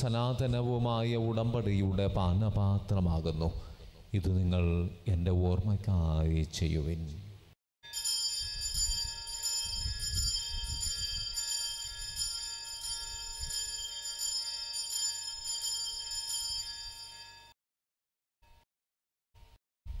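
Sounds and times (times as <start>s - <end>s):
small bells jingling: 7.9s - 17.5s.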